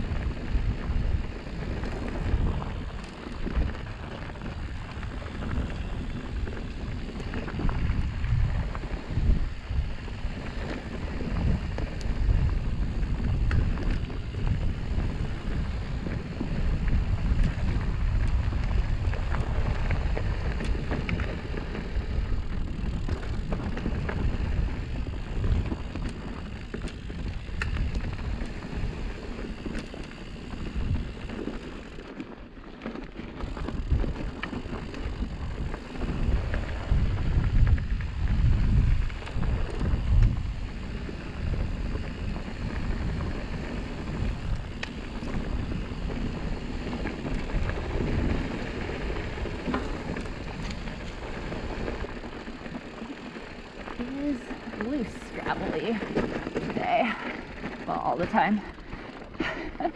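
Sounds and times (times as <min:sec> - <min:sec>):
wind buffeting microphone: 0:00.0 - 0:32.5, 0:33.2 - 0:59.9
bike clicks and rattles: 0:00.0 - 0:59.9
bike tyres rumbling on dirt: 0:00.0 - 0:59.9.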